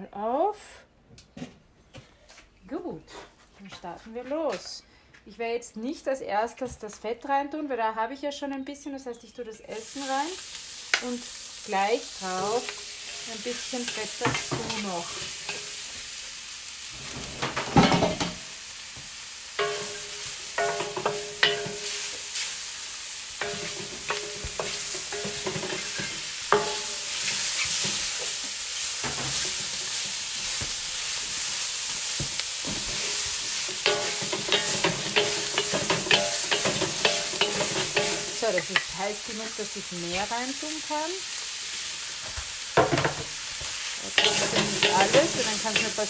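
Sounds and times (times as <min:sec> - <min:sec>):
food sizzling in a wok: 0:09.6 - 0:46.0
spatulas scraping and clacking on pan: 0:12.2 - 0:16.0, 0:16.9 - 0:18.5, 0:19.6 - 0:22.7, 0:23.4 - 0:39.0, 0:42.2 - 0:46.0.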